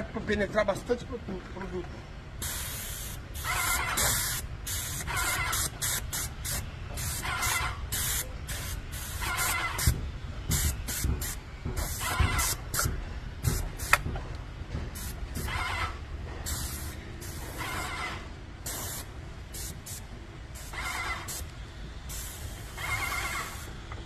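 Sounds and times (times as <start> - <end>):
paint spray gun hissing bursts: 2.4 - 12.9, 13.5 - 14.0, 16.4 - 18.0, 18.6 - 21.5, 22.1 - 23.8.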